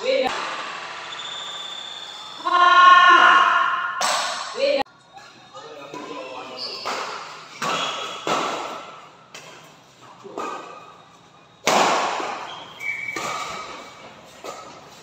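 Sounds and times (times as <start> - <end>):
racket hitting shuttlecock: 4.0 - 4.6, 6.8 - 9.7, 11.6 - 15.0
shoe squeak on court: 6.4 - 8.2, 12.3 - 14.6.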